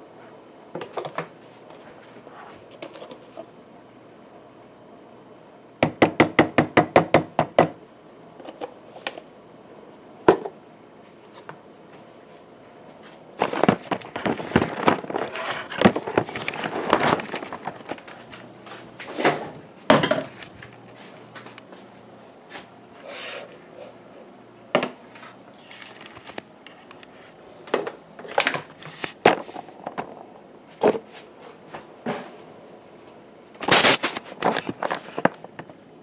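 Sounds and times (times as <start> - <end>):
clattering and rubbing: 13.4 - 20.6.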